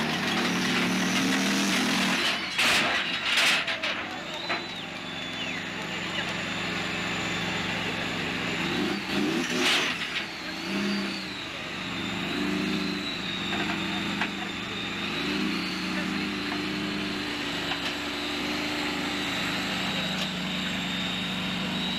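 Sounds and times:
tracked vehicle engine under load: 0:00.0 - 0:21.9
voices: 0:02.4 - 0:08.7, 0:13.0 - 0:21.0.

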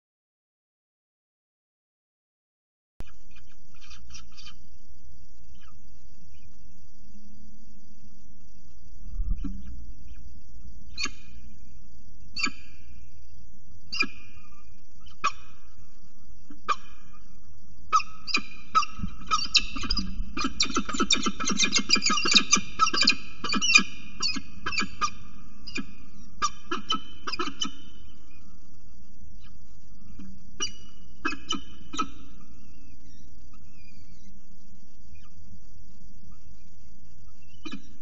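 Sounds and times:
steady low hum: 0:03.0 - 0:38.0
falcons calling: 0:17.9 - 0:28.7.

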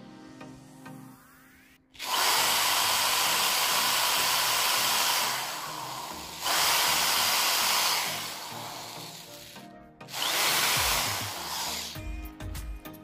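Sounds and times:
electric drill whirring: 0:02.0 - 0:12.0.

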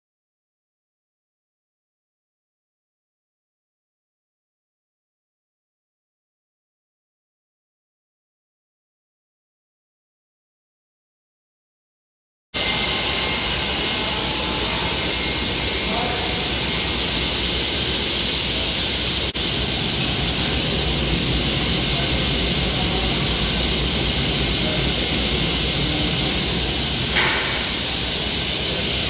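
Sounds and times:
woodworking machinery roaring: 0:12.6 - 0:29.0.

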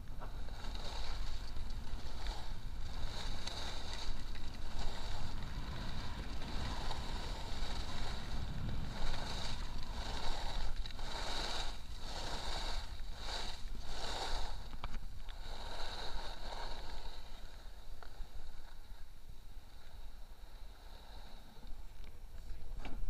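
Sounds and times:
wind buffeting microphone: 0:00.0 - 0:17.8
skis scraping over snow: 0:00.0 - 0:23.0.

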